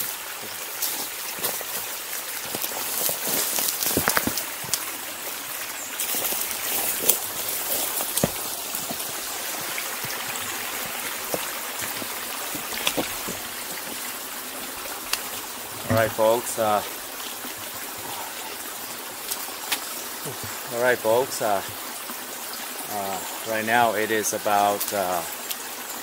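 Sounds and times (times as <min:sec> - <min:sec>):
creek trickling: 0:00.0 - 0:26.0
footsteps splashing in water: 0:00.8 - 0:04.8.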